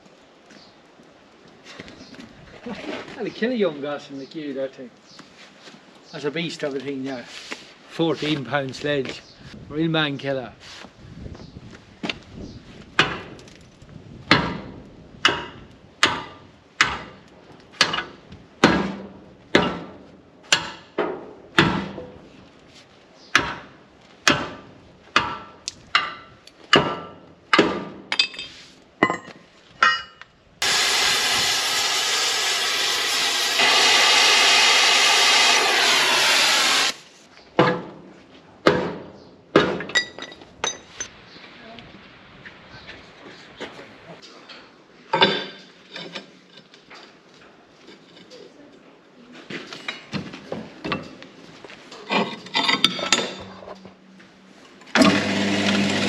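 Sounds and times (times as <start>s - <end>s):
power tool running: 30.6s - 37.0s, 55.0s - 56.0s.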